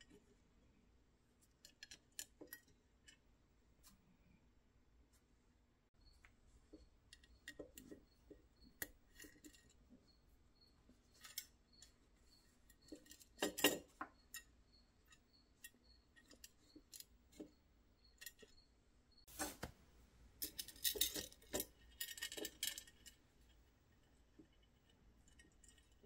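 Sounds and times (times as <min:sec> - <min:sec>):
steel chain jangling against metal: 0:20.4 - 0:23.2.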